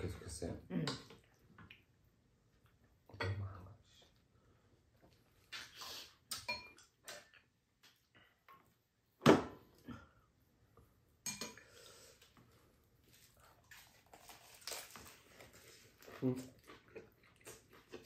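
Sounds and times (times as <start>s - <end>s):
utensils clinking on dishes: 6.3s - 6.9s, 11.3s - 11.7s.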